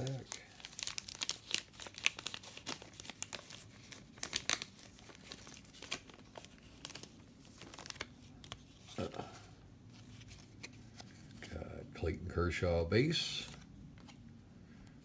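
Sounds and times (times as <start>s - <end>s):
plastic wrapper crinkling and tearing: 0.0s - 9.3s
cards being handled: 0.0s - 11.7s, 13.3s - 14.3s.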